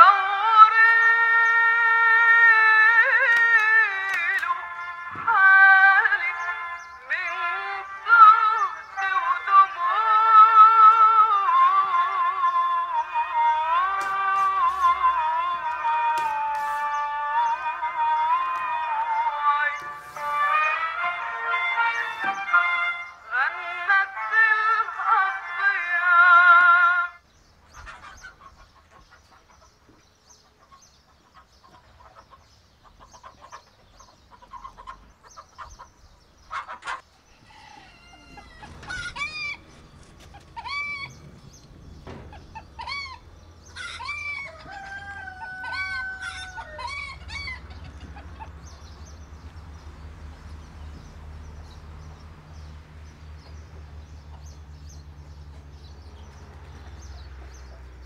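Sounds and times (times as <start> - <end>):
chickens calling: 0.0 - 58.0
rooster crowing: 37.2 - 48.5.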